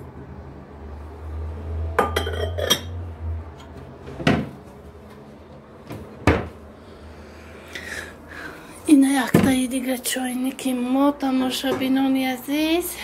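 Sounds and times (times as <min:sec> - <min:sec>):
low steady hum: 0:00.0 - 0:13.0
metal kitchenware clinking: 0:02.0 - 0:03.0.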